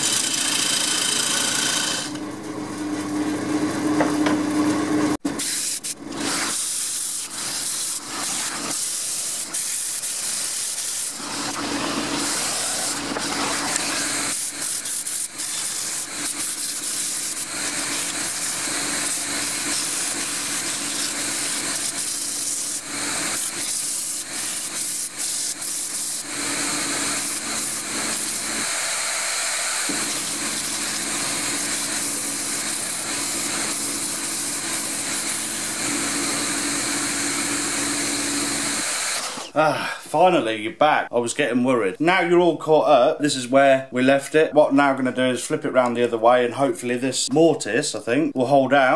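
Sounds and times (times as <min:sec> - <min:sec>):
dust extractor hissing: 0:00.0 - 0:02.3, 0:05.0 - 0:40.0
wood lathe humming: 0:00.0 - 0:05.3, 0:10.2 - 0:39.5.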